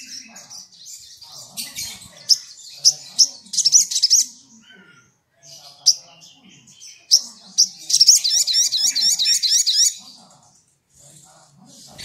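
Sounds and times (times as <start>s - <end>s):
high-pitched bird chirps: 0.0s - 4.4s, 6.8s - 10.1s.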